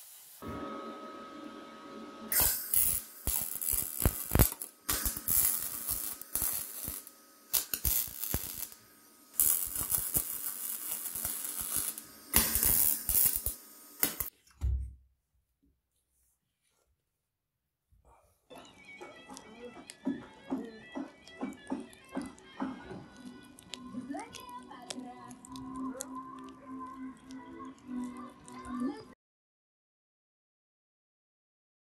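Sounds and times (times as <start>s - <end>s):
welding arc crackling: 0.0s - 0.5s, 2.2s - 14.3s.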